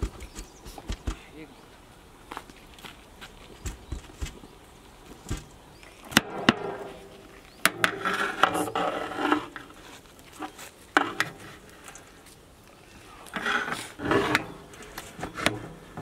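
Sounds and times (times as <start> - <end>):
scraping through cooked rice: 13.2 - 14.6.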